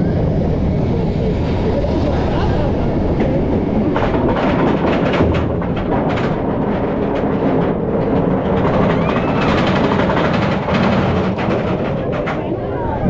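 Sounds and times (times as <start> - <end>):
lift chain rumble: 0.2 - 13.0
rapid irregular clacking: 3.1 - 13.0.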